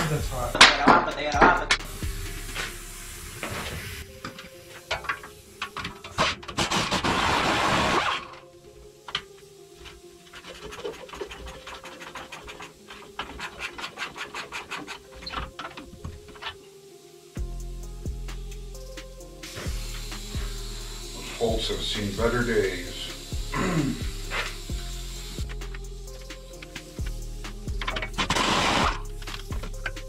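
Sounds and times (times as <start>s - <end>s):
loud hissing burst: 1.8s - 5.6s, 6.6s - 8.2s, 17.1s - 29.2s.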